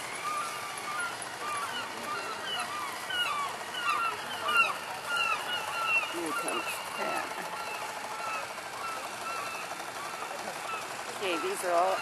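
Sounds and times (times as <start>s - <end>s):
flock of birds calling: 0.0s - 12.0s.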